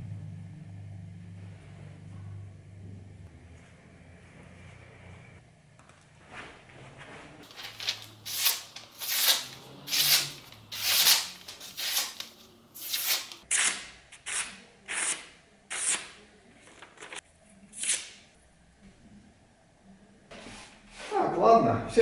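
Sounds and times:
knife slicing paper: 7.4s - 16.2s.

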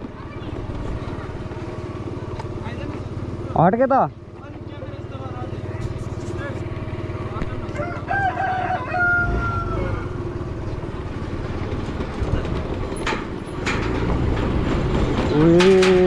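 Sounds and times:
scooter engine running: 0.0s - 16.0s
bridge deck rattling: 10.8s - 16.0s
sharp metallic clanks: 12.9s - 16.0s.

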